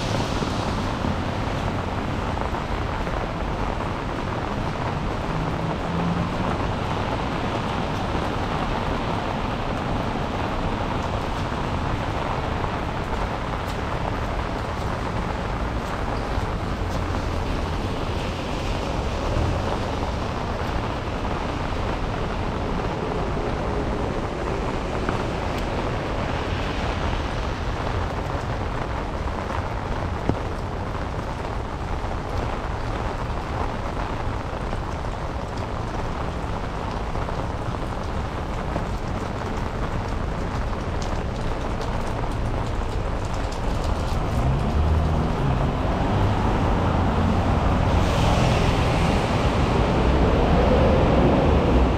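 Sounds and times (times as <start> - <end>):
steady rain falling: 0.0 - 51.9.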